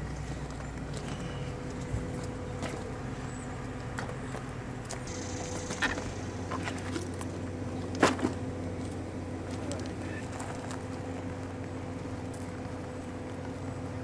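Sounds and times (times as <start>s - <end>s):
low mechanical hum: 0.0s - 14.0s
wooden baskets knocking and scraping: 7.9s - 10.8s.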